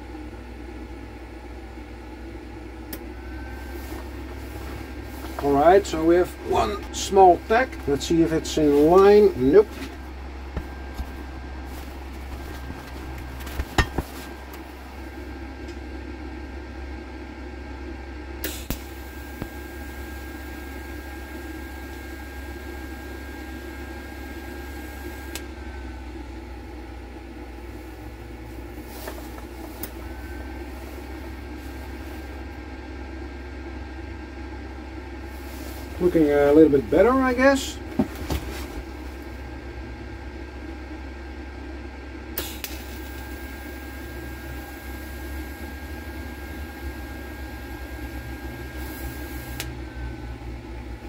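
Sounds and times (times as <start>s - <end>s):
machine hum: 0.0s - 51.0s
welding arc strike click: 18.4s - 19.5s, 42.4s - 43.2s
welding arc tone with hiss: 18.4s - 25.4s, 42.4s - 49.8s.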